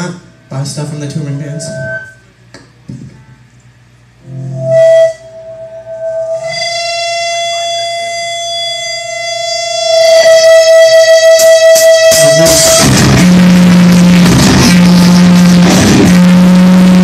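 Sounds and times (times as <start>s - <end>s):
electric guitar feedback: 0.0s - 2.5s, 4.2s - 17.0s
drum hits: 11.8s - 16.4s.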